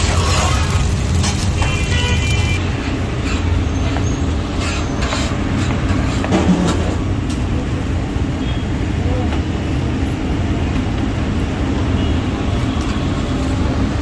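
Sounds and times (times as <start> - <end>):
rumble of passing vehicles: 0.0 - 14.0.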